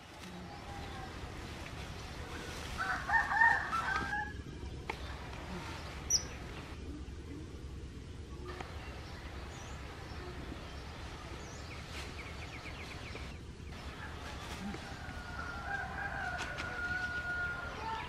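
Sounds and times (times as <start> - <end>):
steady low background noise: 0.0 - 18.0
bird chirps: 6.0 - 6.7.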